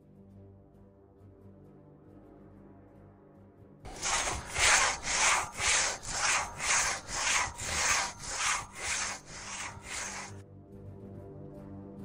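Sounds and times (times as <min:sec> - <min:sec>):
crosscut saw rasping through wood: 0:03.9 - 0:10.4.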